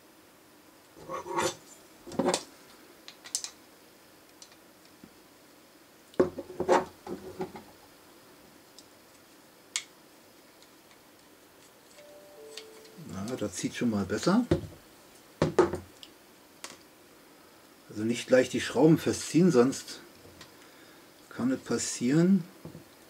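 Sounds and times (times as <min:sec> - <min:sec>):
small parts clicking and clattering: 0:03.1 - 0:03.6.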